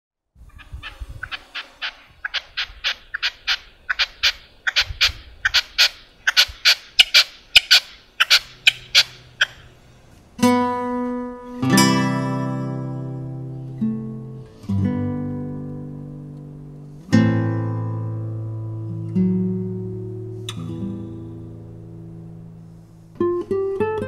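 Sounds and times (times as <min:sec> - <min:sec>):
partridge calling: 0:00.5 - 0:09.8
acoustic guitar strumming: 0:10.4 - 0:24.0.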